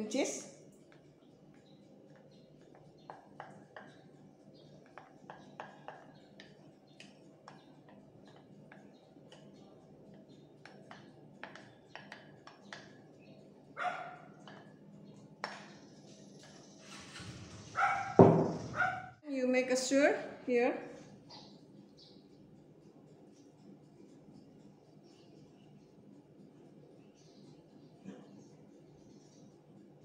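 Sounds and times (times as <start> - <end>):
dog barking: 13.8 - 14.4, 17.7 - 19.2.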